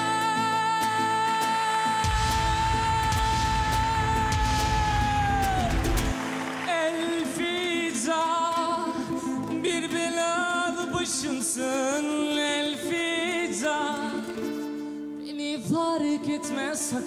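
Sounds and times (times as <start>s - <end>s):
acoustic guitar: 0.0s - 17.0s
man singing: 0.0s - 17.0s.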